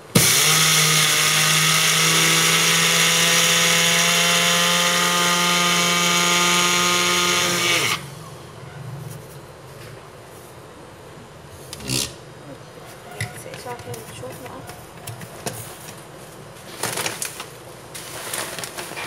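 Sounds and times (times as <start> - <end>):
blender grinding: 0.0 - 8.1.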